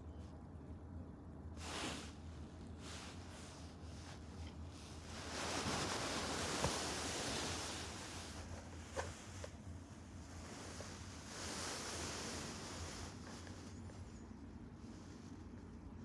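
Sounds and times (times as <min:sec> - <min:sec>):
low steady hum: 0:00.0 - 0:16.0
cat moving and rustling: 0:01.6 - 0:14.2.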